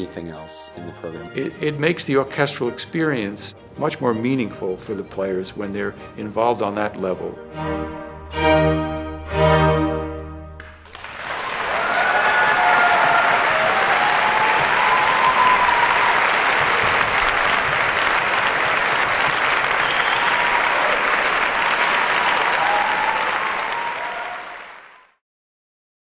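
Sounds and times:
audience applauding: 10.6 - 25.2
faint cheers: 11.0 - 17.7, 19.6 - 25.2.

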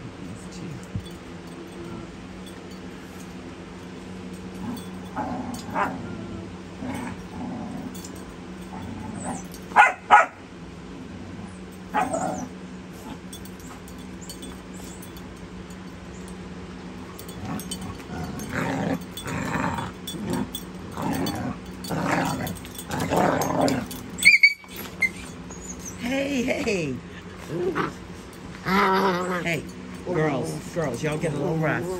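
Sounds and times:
dog play growls: 1.3 - 9.8, 10.9 - 15.2, 16.9 - 26.1, 27.0 - 31.9
puppies yipping: 24.1 - 26.0.

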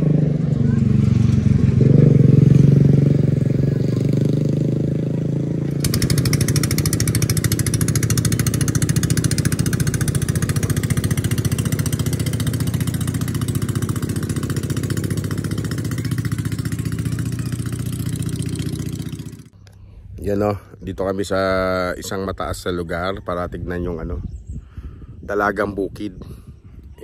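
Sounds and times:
small engine running: 5.7 - 19.5.

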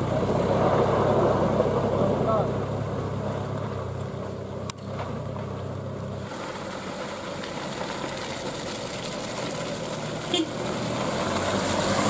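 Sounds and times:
light vehicle engine: 0.0 - 12.0
tyres hissing on wet road: 5.8 - 12.0.

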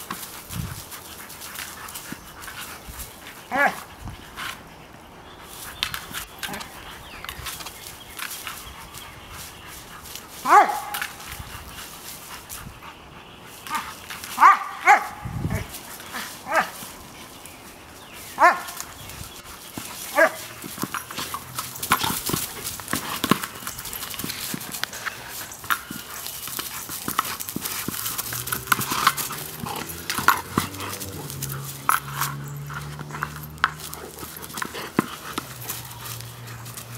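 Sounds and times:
dog barking: 10.4 - 11.0, 14.4 - 15.7, 16.4 - 16.8, 18.4 - 18.8, 20.1 - 20.4.

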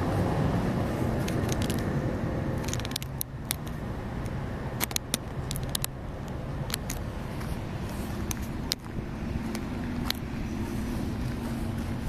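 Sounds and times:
traffic rumble: 0.0 - 12.0
sharp clicks: 2.6 - 7.1.

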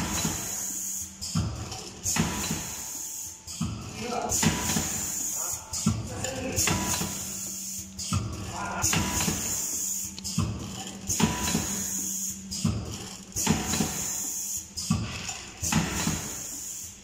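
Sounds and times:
low steady machine hum: 1.3 - 16.5
packing machine knock: 14.9 - 16.4.

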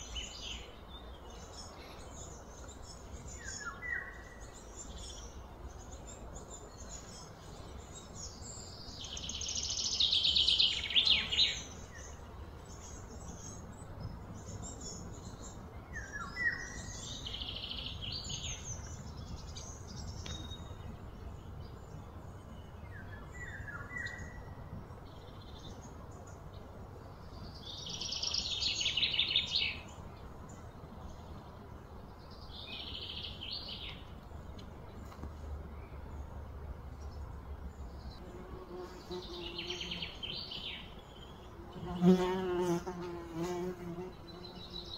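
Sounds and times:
bird buzzing trills: 38.2 - 44.9.

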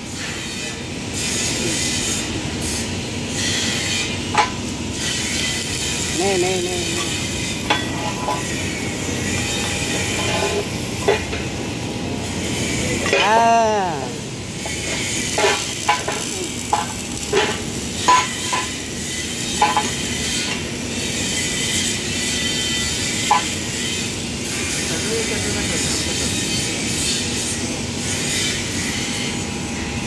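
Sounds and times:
steady shop noise hiss: 0.0 - 30.0
steel plates clinking on steel beam: 7.0 - 8.7, 14.7 - 18.8, 19.5 - 20.6, 23.0 - 23.8.

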